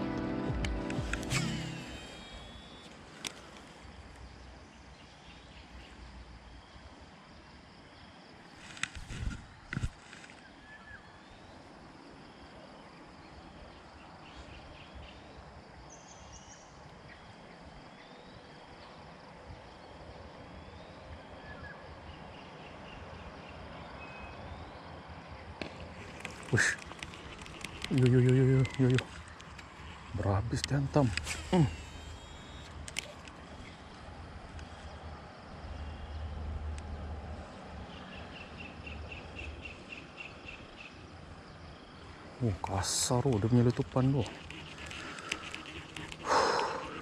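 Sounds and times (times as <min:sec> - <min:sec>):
sharp click: 0:00.6 - 0:02.0
rapid high chirping: 0:00.7 - 0:02.9, 0:43.1 - 0:47.0
faint bird chirps: 0:01.3 - 0:07.0, 0:10.3 - 0:25.0, 0:26.2 - 0:36.4, 0:37.9 - 0:47.0.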